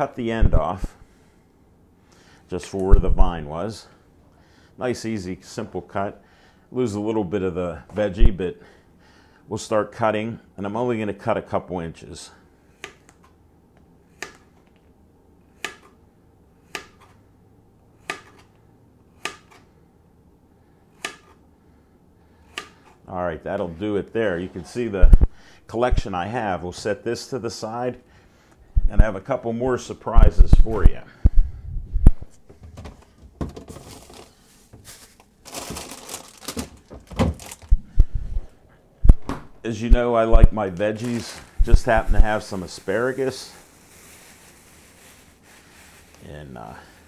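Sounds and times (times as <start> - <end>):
knife chopping on plastic board: 15.6 - 15.9, 16.7 - 17.1, 18.0 - 18.5, 19.2 - 19.6, 21.0 - 21.4
plastic bag rustling: 32.8 - 38.3, 40.6 - 47.0.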